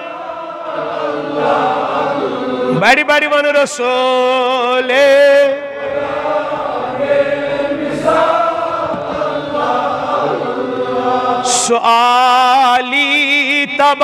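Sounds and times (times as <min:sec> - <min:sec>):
men chanting in unison: 0:00.0 - 0:14.0
man singing: 0:02.7 - 0:05.8, 0:11.4 - 0:14.0.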